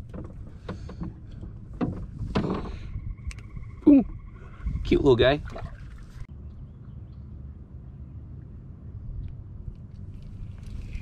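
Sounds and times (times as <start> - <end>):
wind buffeting microphone: 0.0 - 7.2.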